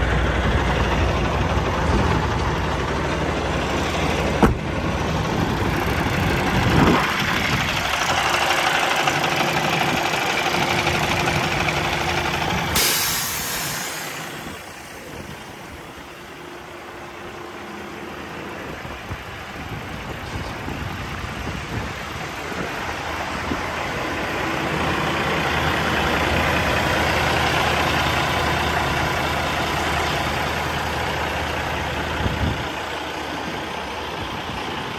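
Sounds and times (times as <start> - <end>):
diesel truck engine idling: 0.0 - 34.9
brief hiss: 12.8 - 14.3.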